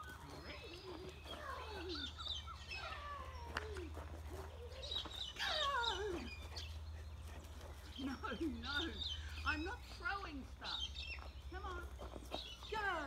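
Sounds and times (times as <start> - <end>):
birds whistling descending calls: 0.0 - 3.7.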